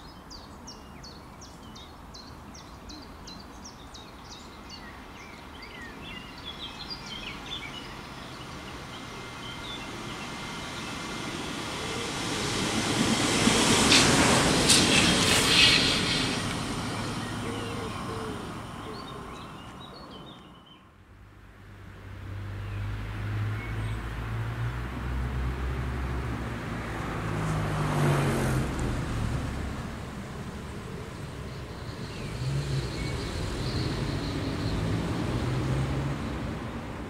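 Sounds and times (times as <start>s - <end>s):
train rumbling over viaduct: 5.9s - 20.7s, 24.9s - 37.0s.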